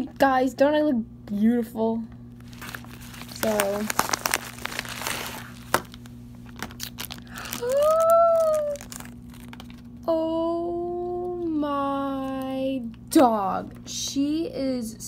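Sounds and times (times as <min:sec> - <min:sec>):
low electrical hum: 0:00.0 - 0:15.0
plastic bag crinkling: 0:02.4 - 0:10.0
girl cooing: 0:07.4 - 0:08.9.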